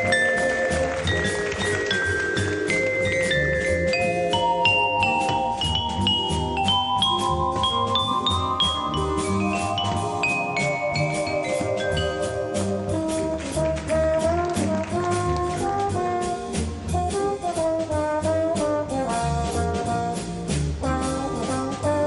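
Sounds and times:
big band jazz waltz: 0:00.0 - 0:22.0
trombone solo: 0:12.2 - 0:22.0.

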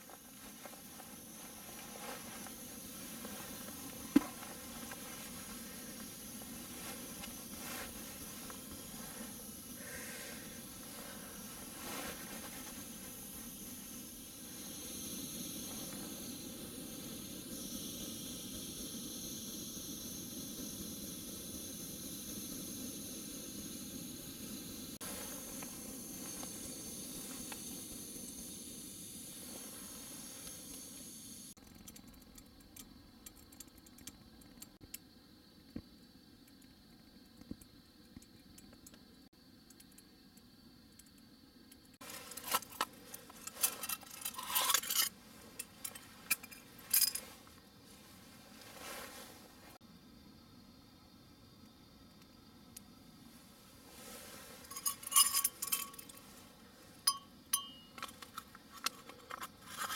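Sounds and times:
camp stove hissing: 0:00.0 - 0:31.6, 0:41.9 - 0:59.9.

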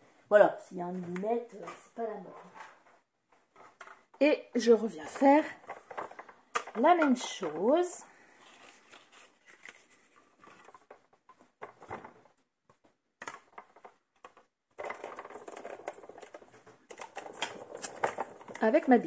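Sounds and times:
paper rustling and tapping: 0:05.1 - 0:19.0.

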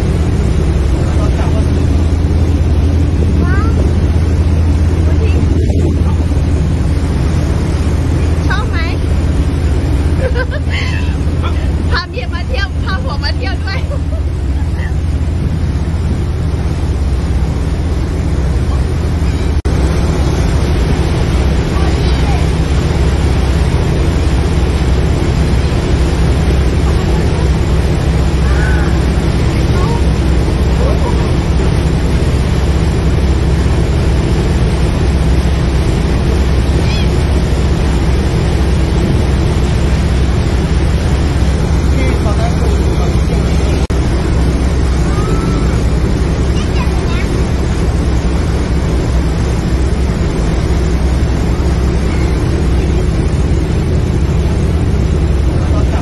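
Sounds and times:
boat engine droning: 0:00.0 - 0:56.0
churning wake rushing: 0:00.0 - 0:56.0
wind buffeting microphone: 0:00.0 - 0:56.0
gull calling: 0:36.7 - 0:37.3.

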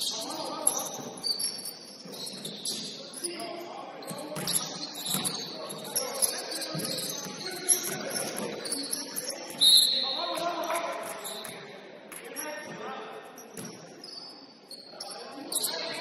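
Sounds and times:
players' voices: 0:00.0 - 0:16.0
basketball bouncing on court: 0:04.0 - 0:05.8.

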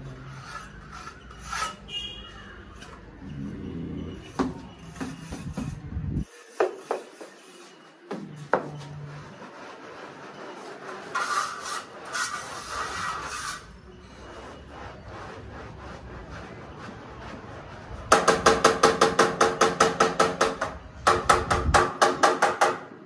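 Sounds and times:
trowel scraping mortar on wall: 0:00.0 - 0:20.6
steel trowel knocking: 0:00.3 - 0:03.0, 0:04.2 - 0:09.0.

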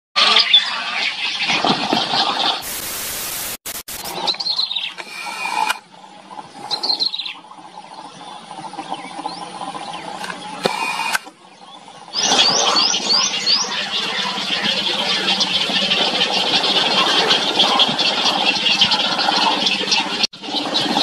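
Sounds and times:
flat hiss: 0:02.6 - 0:04.3
birds chattering: 0:04.0 - 0:21.0
high falling bird calls: 0:04.0 - 0:21.0.

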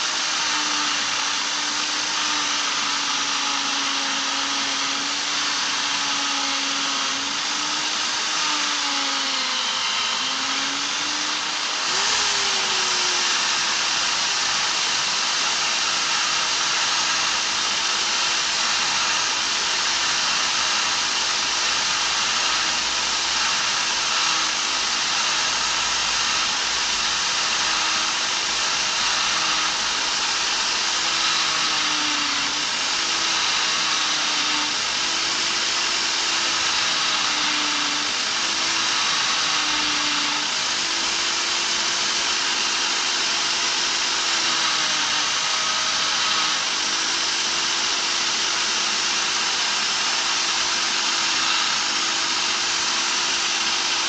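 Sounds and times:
electric drill motor hum: 0:00.0 - 0:54.0.

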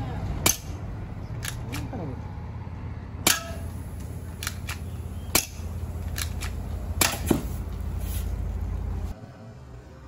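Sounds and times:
airsoft pistol shots: 0:03.2 - 0:03.7, 0:04.4 - 0:06.4, 0:07.0 - 0:07.4.

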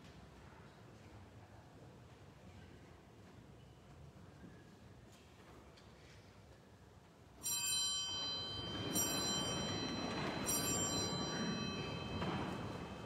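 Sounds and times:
bell ringing: 0:07.4 - 0:13.0.

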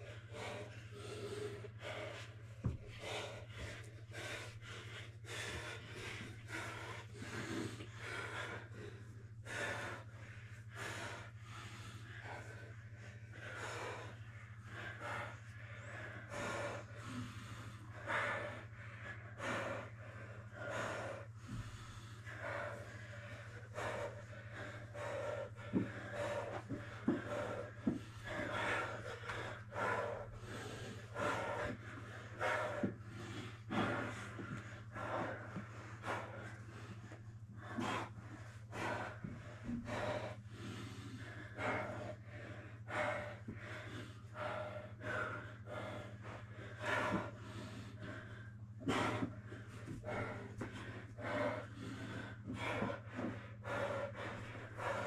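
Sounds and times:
heavy rapid breathing and gasps: 0:00.0 - 0:55.0.

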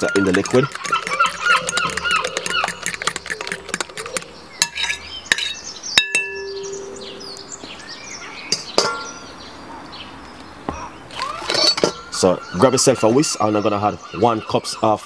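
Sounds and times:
spoon scraping glass bowl: 0:00.0 - 0:05.6
sharp clink on glass: 0:04.6 - 0:06.9.

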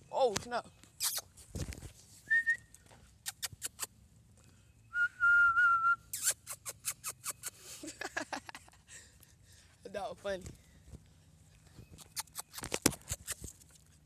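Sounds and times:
person whistling: 0:02.3 - 0:02.7, 0:04.9 - 0:06.2.

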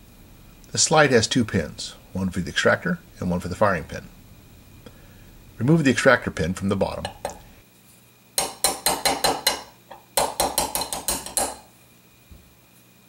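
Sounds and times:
hammer tapping a pin punch: 0:08.4 - 0:11.7.

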